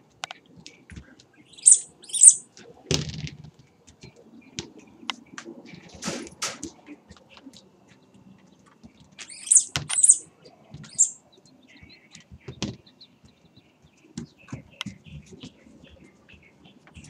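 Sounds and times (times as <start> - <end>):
high-pitched squeaks: 1.6 - 2.4, 9.3 - 10.2, 10.9 - 11.2.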